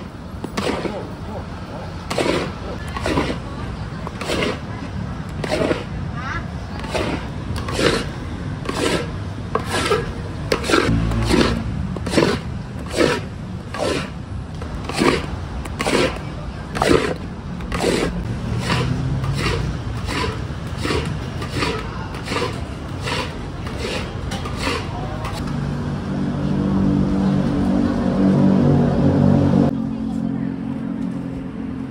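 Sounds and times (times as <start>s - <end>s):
paddle scraping metal wok: 0.0s - 1.0s, 1.9s - 6.0s, 6.7s - 14.2s, 14.8s - 25.4s
low rumble: 25.4s - 31.9s.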